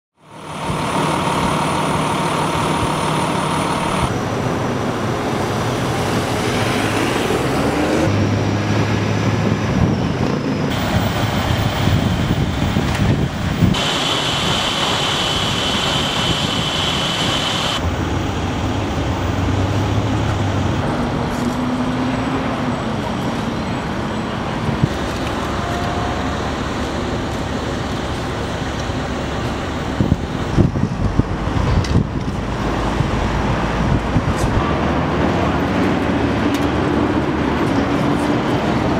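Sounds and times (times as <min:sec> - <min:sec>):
traffic and vehicle engines: 0:00.1 - 0:38.9
steady high whine: 0:00.2 - 0:05.7, 0:10.1 - 0:19.4.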